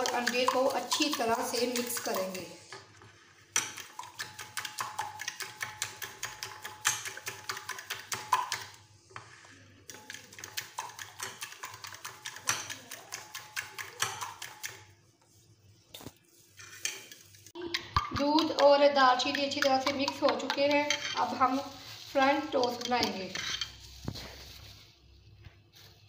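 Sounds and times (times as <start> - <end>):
fork beating batter in glass dish: 0.0 - 14.9, 16.4 - 21.7, 22.4 - 23.8.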